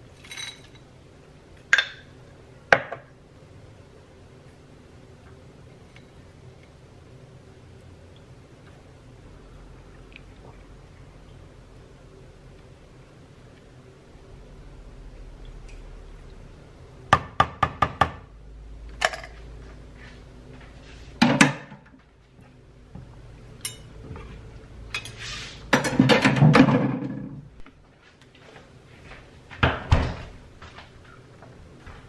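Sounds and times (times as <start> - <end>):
kitchenware clattering and scraping: 0.2 - 0.9, 23.6 - 27.4.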